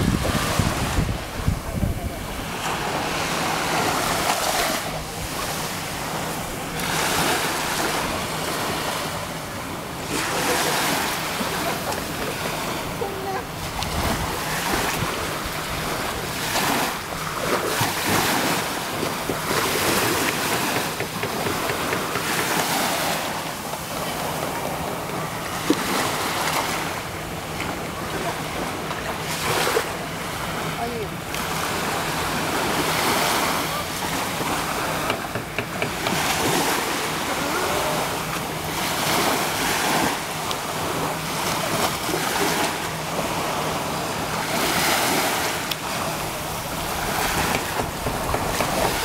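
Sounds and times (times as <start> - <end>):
wind on microphone: 0.0 - 9.2, 12.8 - 21.6
waves lapping on beach: 0.0 - 49.0.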